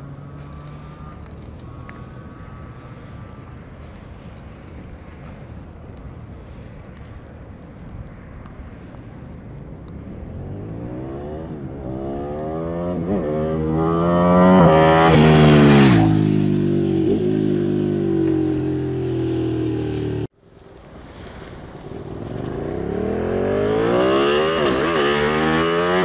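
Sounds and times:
motorcycle engine accelerating past: 0.0s - 5.3s, 10.1s - 20.3s, 21.1s - 26.0s.

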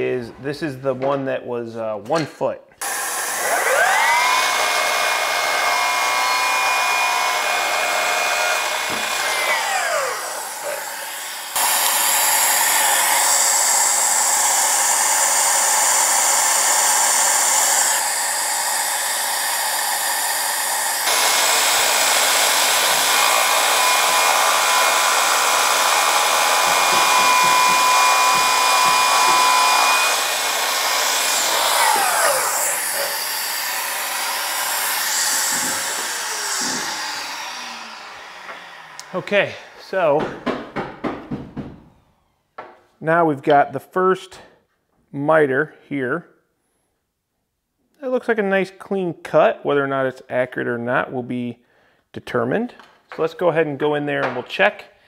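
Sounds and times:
miter saw motor whining: 2.8s - 40.0s.

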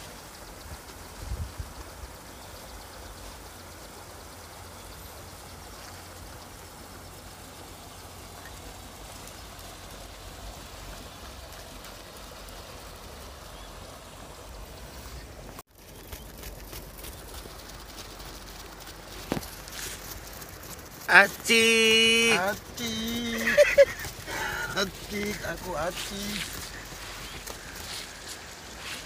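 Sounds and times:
wind rumble on microphone: 0.6s - 2.1s.

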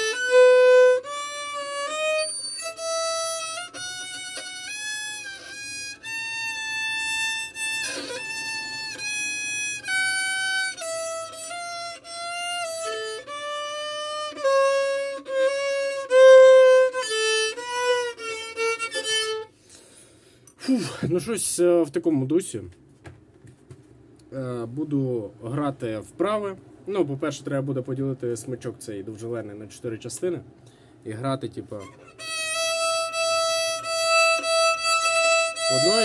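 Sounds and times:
violin playing slow scale: 0.0s - 19.6s, 31.8s - 36.0s.

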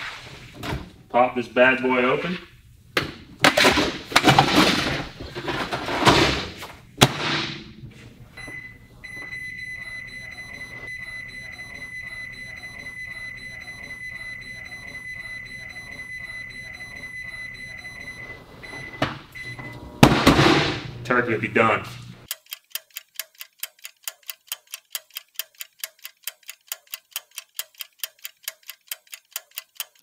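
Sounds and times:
microwave running hum and tone: 7.6s - 22.3s.

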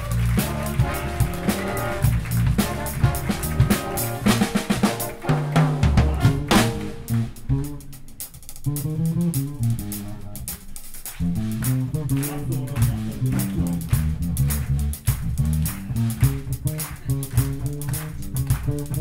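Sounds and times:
drum kit: 0.0s - 19.0s
electric bass line: 0.0s - 19.0s.

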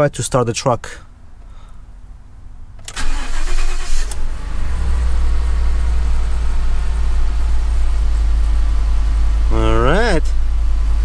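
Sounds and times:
truck engine idling: 3.0s - 11.0s.

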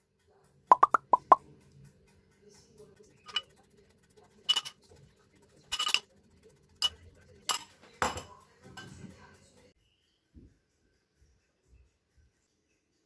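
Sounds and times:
metal spoon clinking on crockery: 3.2s - 3.6s, 4.4s - 4.9s, 5.6s - 6.1s, 6.8s - 9.0s.

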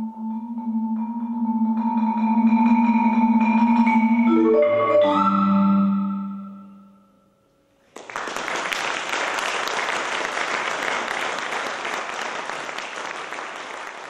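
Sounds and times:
audience applauding: 7.9s - 14.0s.

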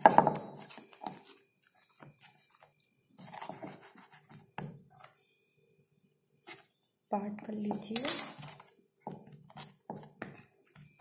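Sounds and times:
hands kneading dough: 8.4s - 11.0s.

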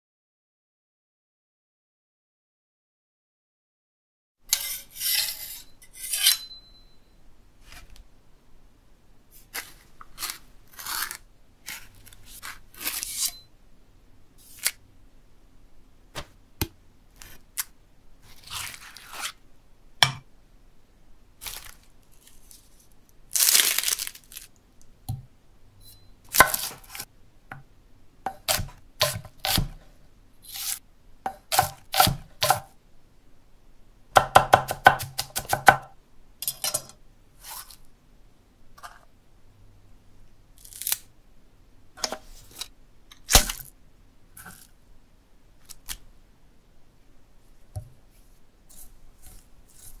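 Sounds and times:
knife on sharpening stone: 4.5s - 6.9s, 12.8s - 13.5s
scraping and tearing flesh: 9.5s - 13.3s.

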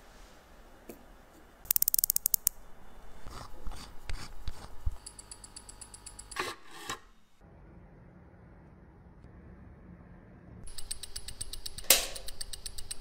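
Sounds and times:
sharp clicks of watch parts: 1.7s - 2.6s, 10.7s - 13.0s
watch movement ticking: 1.7s - 2.6s, 4.9s - 6.4s, 10.6s - 13.0s.

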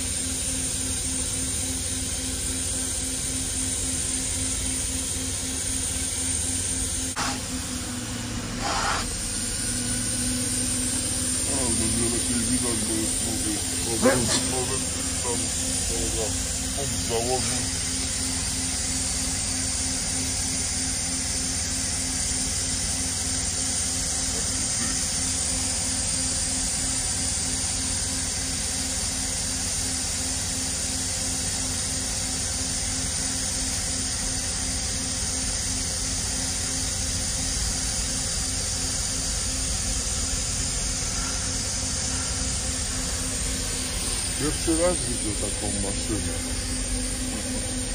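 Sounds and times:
abrasive blasting hiss: 2.3s - 20.4s, 39.1s - 47.9s
low hum: 39.0s - 47.9s.

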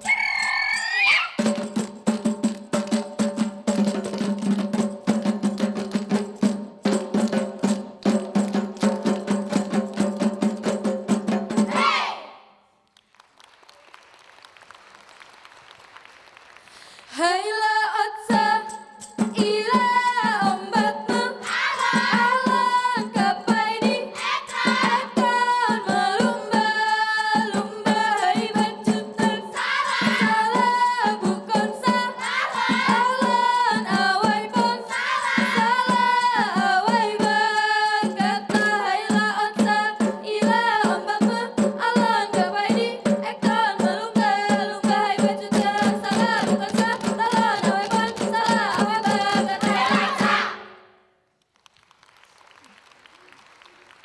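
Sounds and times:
clapping percussion: 1.4s - 11.8s, 12.8s - 17.3s, 21.4s - 38.8s, 44.9s - 50.4s, 51.4s - 54.0s
hand claps: 7.3s - 10.2s, 12.8s - 17.1s, 51.4s - 54.0s
group of voices singing: 11.6s - 12.5s, 19.4s - 50.8s.

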